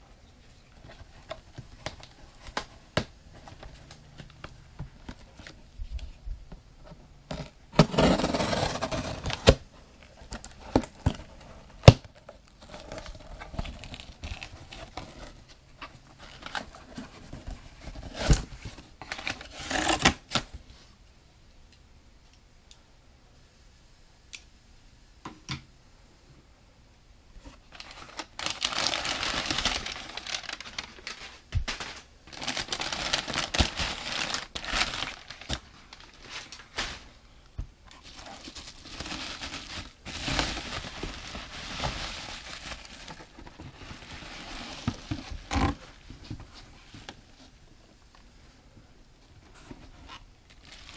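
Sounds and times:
packing tape tearing: 19.1 - 20.5.

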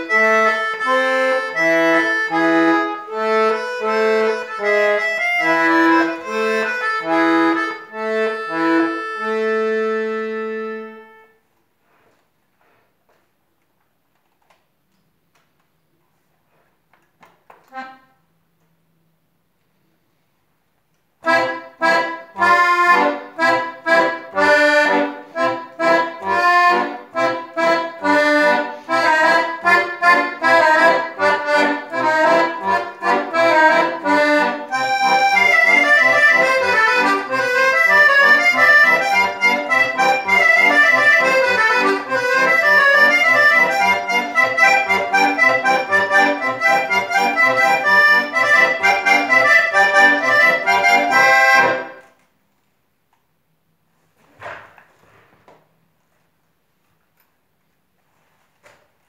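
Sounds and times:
accordion playing dance music: 0.0 - 11.4, 17.6 - 18.2, 21.2 - 52.1.

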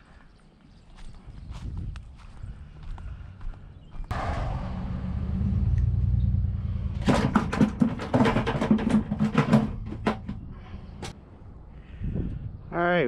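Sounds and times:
low rumble: 4.1 - 11.0
fishing gear clicking and clattering: 7.0 - 11.2.

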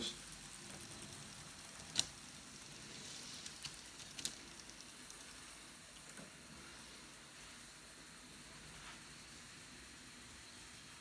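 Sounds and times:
faint steady hiss: 0.0 - 11.0
small sharp clicks: 1.8 - 2.2.

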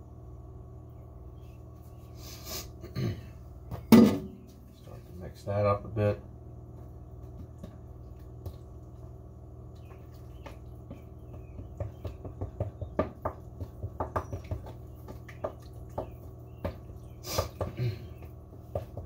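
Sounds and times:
wooden spoon stirring dough: 6.7 - 19.0.

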